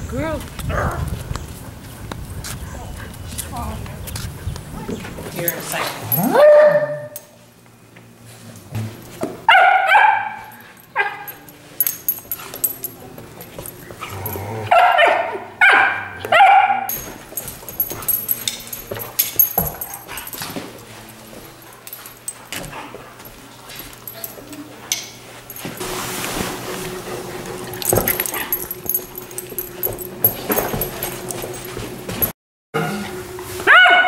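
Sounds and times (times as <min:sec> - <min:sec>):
dogs yipping and barking: 0:05.7 - 0:07.3, 0:09.5 - 0:20.6, 0:26.6 - 0:32.0, 0:33.7 - 0:34.0
dogs scuffling: 0:10.2 - 0:14.4, 0:15.0 - 0:32.3.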